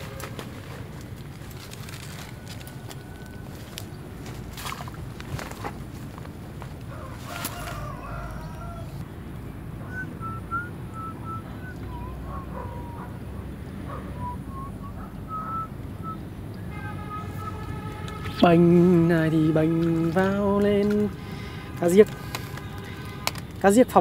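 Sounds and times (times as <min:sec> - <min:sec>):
low outdoor background: 0:00.0 - 0:24.0
rooster crowing: 0:02.0 - 0:04.2, 0:06.8 - 0:09.0.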